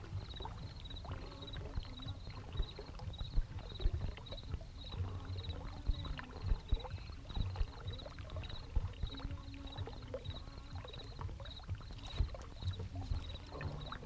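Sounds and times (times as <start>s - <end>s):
waves knocking against boat hull: 0.0s - 14.0s.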